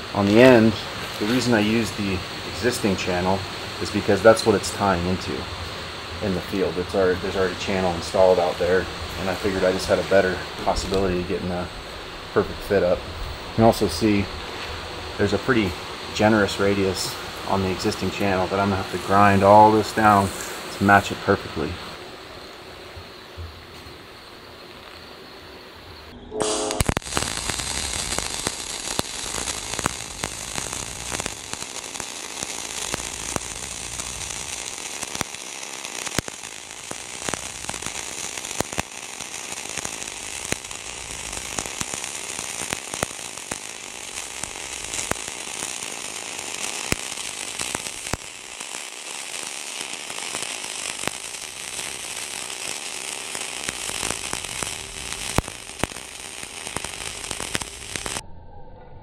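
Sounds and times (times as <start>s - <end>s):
welding arc crackling: 0.0s - 24.1s, 26.3s - 58.2s.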